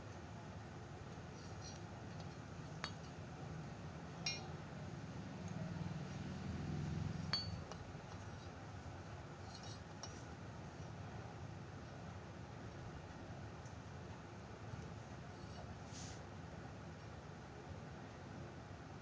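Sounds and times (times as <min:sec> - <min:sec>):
soft handling rumble: 0:01.0 - 0:12.0
small metal object clinking: 0:04.2 - 0:04.5, 0:07.1 - 0:08.5, 0:09.4 - 0:10.2.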